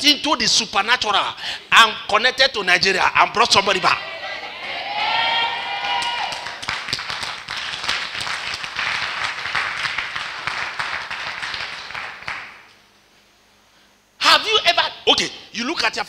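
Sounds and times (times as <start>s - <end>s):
crowd clapping: 5.7s - 12.7s.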